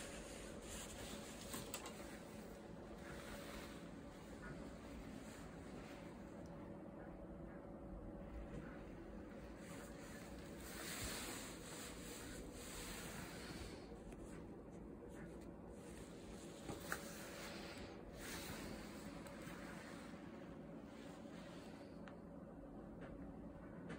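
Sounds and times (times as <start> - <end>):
fabric rustling and rubbing: 0.0 - 6.3, 9.3 - 21.1.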